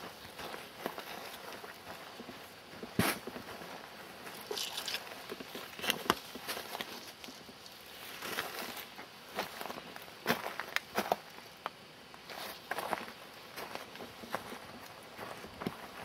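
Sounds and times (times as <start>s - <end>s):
footsteps on forest floor: 0.1s - 11.6s, 12.2s - 16.0s
twigs snapping underfoot: 4.4s - 5.1s.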